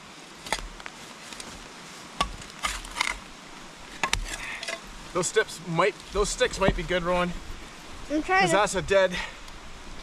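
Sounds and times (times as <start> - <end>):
saw blade scraping ground: 2.2 - 3.2.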